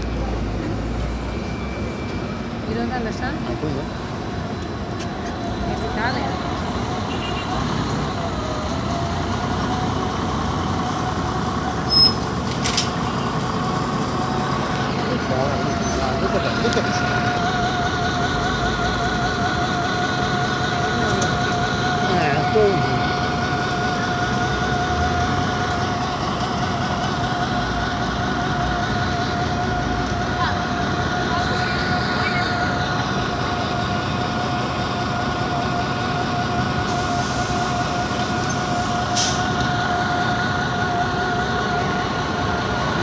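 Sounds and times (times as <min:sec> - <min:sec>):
bus engine rumble: 0:00.0 - 0:43.0
street noise: 0:00.0 - 0:43.0
high squeak: 0:11.8 - 0:12.3.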